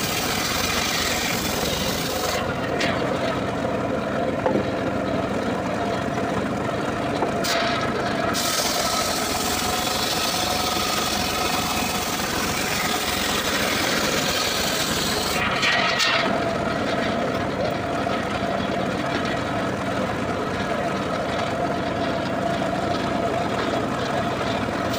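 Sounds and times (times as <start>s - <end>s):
saw blade cutting log: 0.0s - 3.5s, 7.4s - 18.4s
circular sawmill running: 0.0s - 24.9s.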